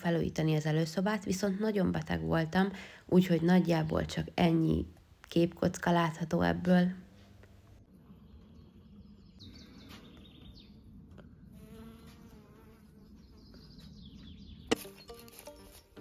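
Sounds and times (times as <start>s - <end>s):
background music: 14.7s - 16.0s.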